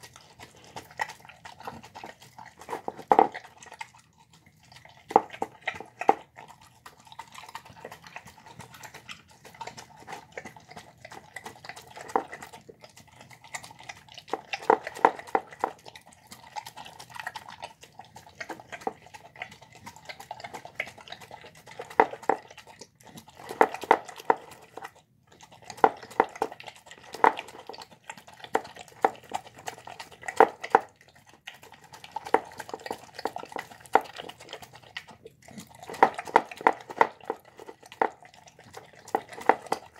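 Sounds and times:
dog chewing wetly: 0:00.0 - 0:39.9
clicks and knocks against bowl: 0:02.6 - 0:03.4, 0:05.1 - 0:06.3, 0:14.3 - 0:15.8, 0:21.8 - 0:22.5, 0:23.4 - 0:24.9, 0:25.8 - 0:27.8, 0:30.3 - 0:30.9, 0:35.8 - 0:38.2, 0:38.8 - 0:39.9.

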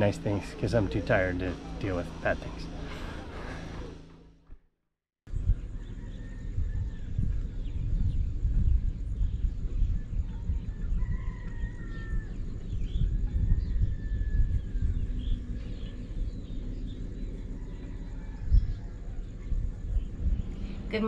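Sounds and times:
wind gusting on microphone: 0:05.3 - 0:21.0.

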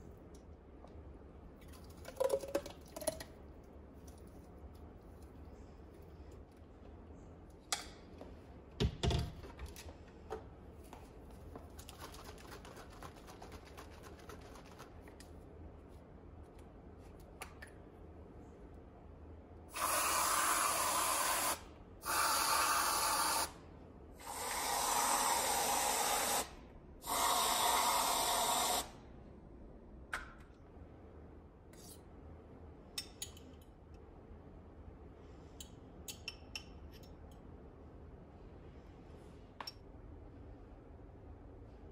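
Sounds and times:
aerosol cream can hissing: 0:24.2 - 0:28.9.

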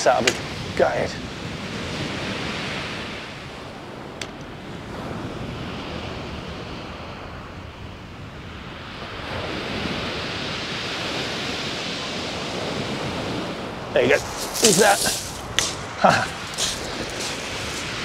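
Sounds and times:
wind on microphone: 0:00.0 - 0:18.0
surf breaking on shingle: 0:14.1 - 0:18.0.

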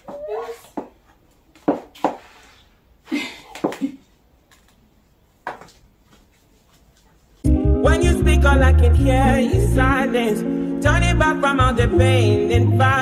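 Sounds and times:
high heels clicking on tiled floor: 0:00.0 - 0:02.4, 0:05.4 - 0:07.1.

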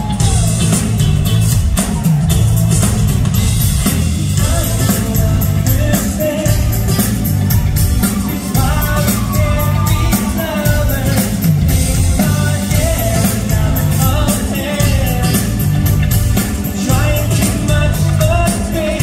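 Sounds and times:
drums: 0:00.0 - 0:19.0
keyboard: 0:00.0 - 0:19.0
man singing into a microphone: 0:04.4 - 0:07.4, 0:08.1 - 0:15.9, 0:16.6 - 0:19.0.

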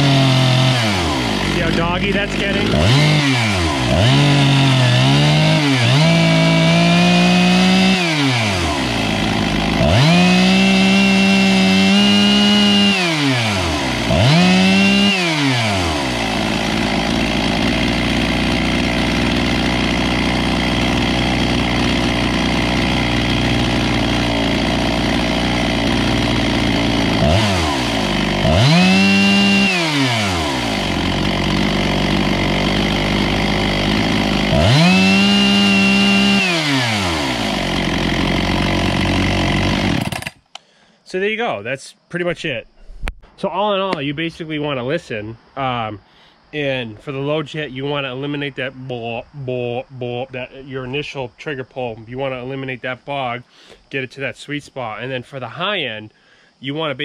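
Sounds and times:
chainsaw engine revving: 0:00.0 - 0:40.6.

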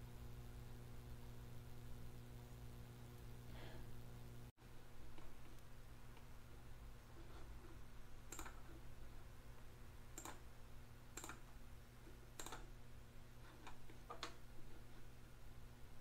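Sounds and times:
steady low hum: 0:00.0 - 0:16.0
computer mouse clicking: 0:08.3 - 0:08.8, 0:10.1 - 0:10.5, 0:11.1 - 0:11.5, 0:12.4 - 0:12.7, 0:13.5 - 0:14.4.

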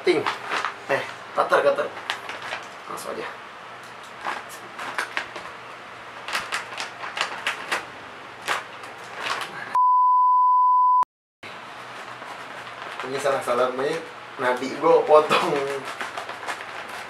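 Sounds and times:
plastic bag crinkling: 0:00.0 - 0:03.0, 0:06.2 - 0:09.6, 0:11.8 - 0:14.1, 0:14.7 - 0:17.0
censor bleep: 0:09.8 - 0:11.1.

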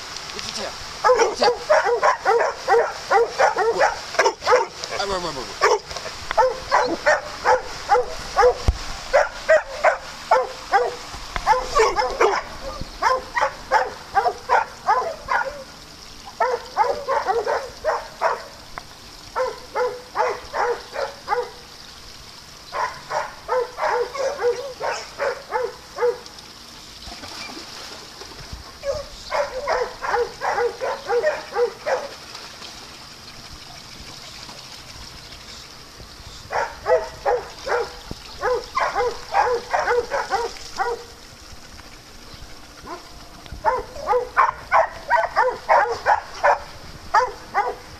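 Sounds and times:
dog barking: 0:01.0 - 0:05.0, 0:05.6 - 0:15.7, 0:16.4 - 0:18.5, 0:19.4 - 0:21.6, 0:22.8 - 0:26.2, 0:28.8 - 0:32.1, 0:36.5 - 0:41.1, 0:43.6 - 0:47.8.

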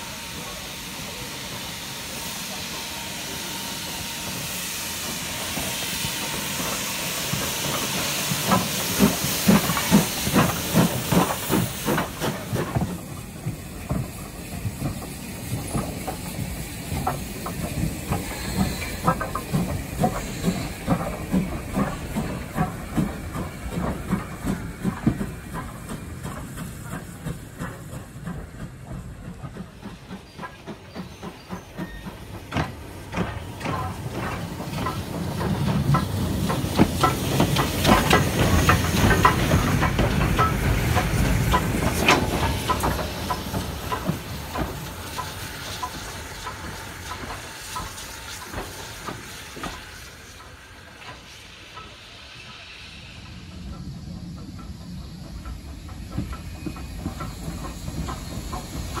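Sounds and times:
steam locomotive hissing: 0:00.0 - 0:59.0
wheels clicking and clanking on track: 0:00.0 - 0:59.0.

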